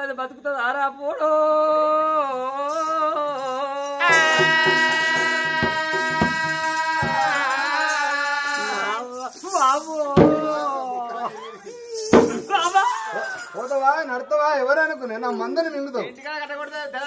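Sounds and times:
man singing: 0.5s - 11.4s
drum strokes: 3.9s - 10.7s, 12.1s - 12.7s.

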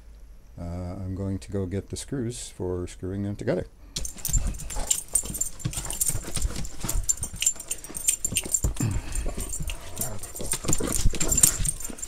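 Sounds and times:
dogs clicking and scuffling: 4.0s - 12.0s.

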